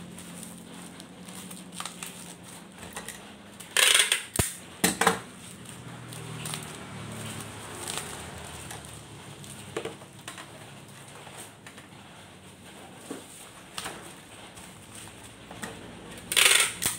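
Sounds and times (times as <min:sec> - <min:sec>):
packing tape rasping off dispenser: 0:00.0 - 0:04.7, 0:05.3 - 0:09.7, 0:16.1 - 0:16.9
bubble wrap crinkling: 0:00.0 - 0:16.9
tape dispenser click: 0:03.0 - 0:04.6, 0:16.2 - 0:16.9.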